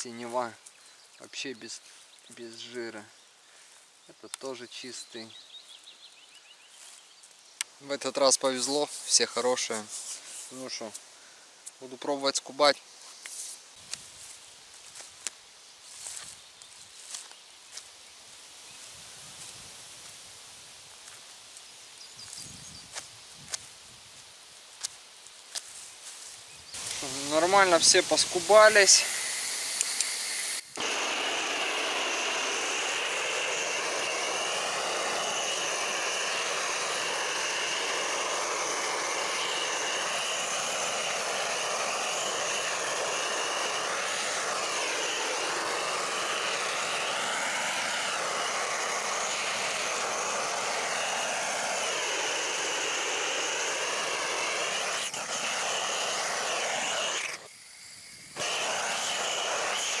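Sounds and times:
blowtorch flame hissing: 26.8s - 60.0s.

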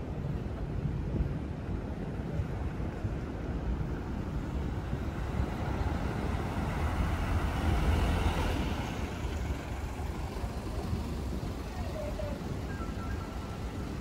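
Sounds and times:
coach diesel engine driving past: 4.3s - 14.0s.

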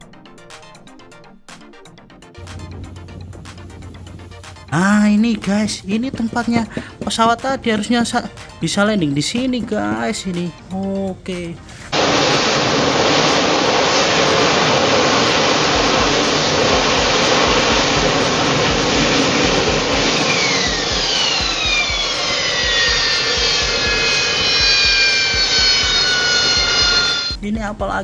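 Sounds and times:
high engine whines falling: 2.4s - 8.5s, 11.9s - 27.4s
jet engine rushing: 2.4s - 8.5s, 11.9s - 27.4s.

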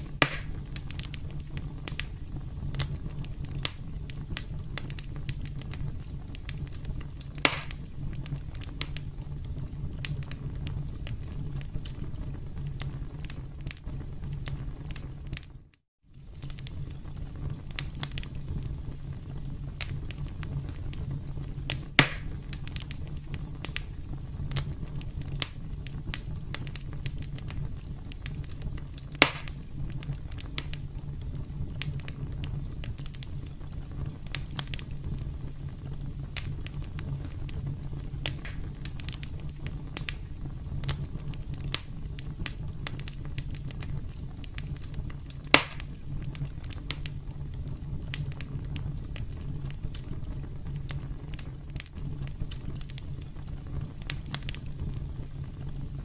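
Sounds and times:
campfire crackling: 0.0s - 56.0s
low steady rumble: 16.2s - 56.0s.

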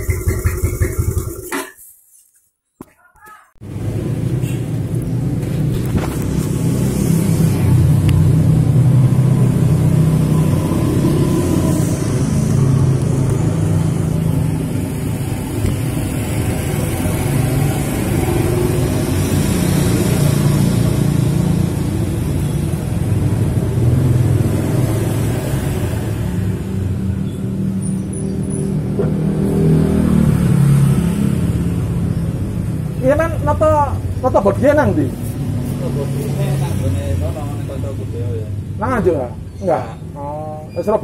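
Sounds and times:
single-cylinder engine running: 0.0s - 1.6s.

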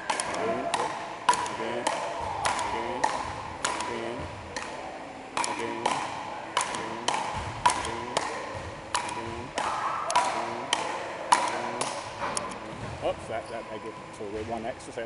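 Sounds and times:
ball struck by paddles: 0.0s - 13.0s.

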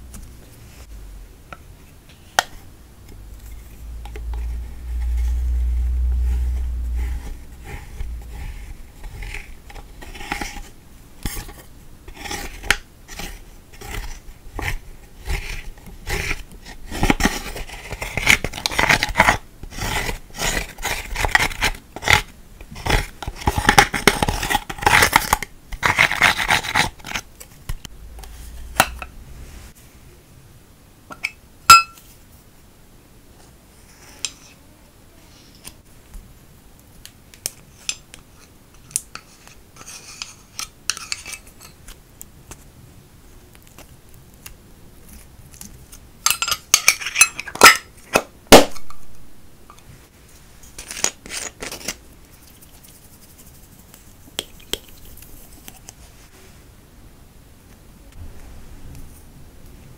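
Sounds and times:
low rumble: 0.0s - 1.4s, 3.0s - 9.6s, 27.8s - 29.8s, 58.1s - 59.6s
spatula scraping powder: 3.4s - 27.2s, 39.2s - 41.5s, 50.8s - 56.4s.

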